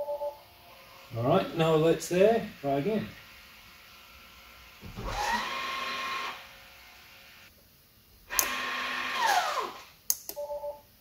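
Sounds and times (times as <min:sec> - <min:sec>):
brake motor whirring: 0:00.6 - 0:07.5, 0:08.3 - 0:09.9.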